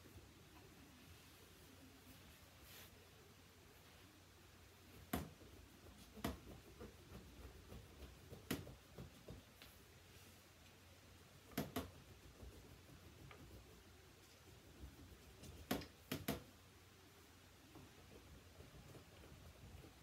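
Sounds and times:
crayon scraping and tapping: 5.1 - 9.8.

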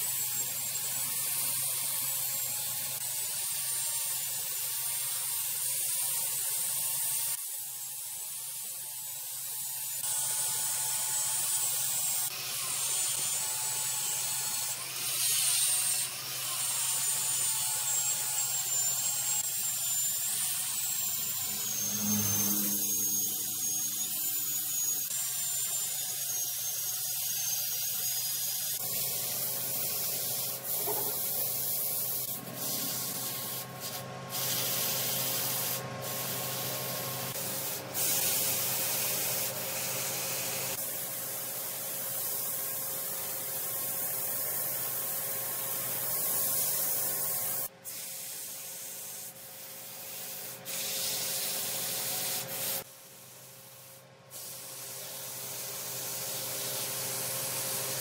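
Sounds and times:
wood lathe rubbing hiss: 18.0 - 52.9
thin high whine: 20.8 - 25.1, 30.7 - 31.4.

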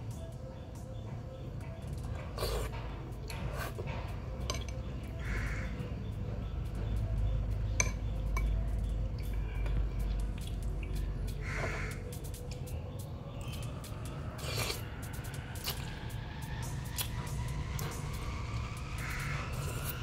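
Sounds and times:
slurping noodle soup: 2.4 - 2.7, 14.4 - 14.9.

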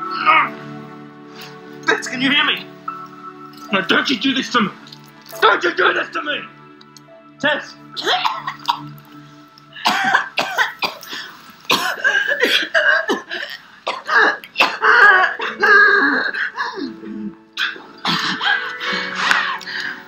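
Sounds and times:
woman coughing and gasping: 8.0 - 9.0, 9.8 - 16.8, 17.6 - 18.6.

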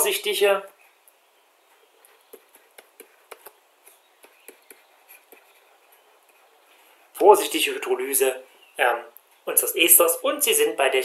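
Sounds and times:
stylus tapping on tablet screen: 2.2 - 5.6.

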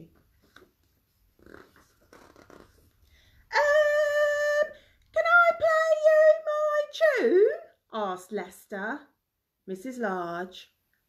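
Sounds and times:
book page turning: 0.2 - 2.9.

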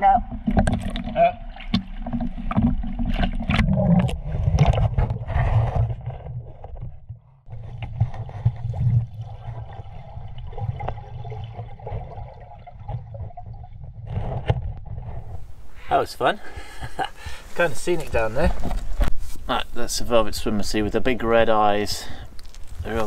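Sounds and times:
water splashing: 0.0 - 6.8, 7.5 - 15.8.

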